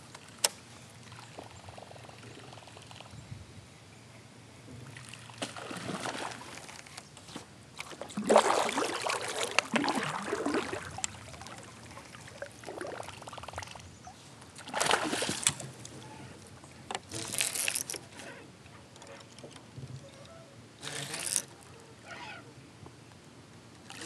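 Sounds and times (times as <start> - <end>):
fish thrashing water splashing: 5.1 - 6.8, 7.9 - 11.6, 14.6 - 15.7.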